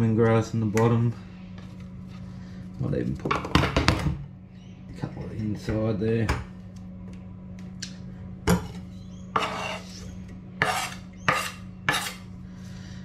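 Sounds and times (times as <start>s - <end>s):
knife scraping wooden board: 9.3s - 12.2s.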